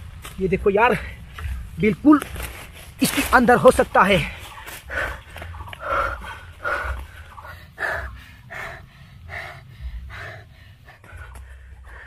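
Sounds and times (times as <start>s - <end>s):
man breathing hard: 4.3s - 12.0s.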